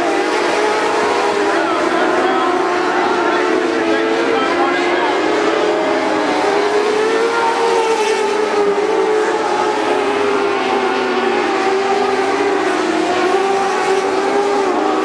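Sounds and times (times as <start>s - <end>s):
race car engines: 0.0s - 15.0s.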